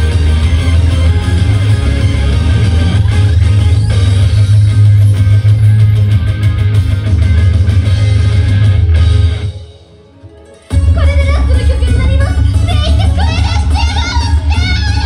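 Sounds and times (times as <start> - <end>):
loud guitar music with heavy bass: 0.0 - 9.9.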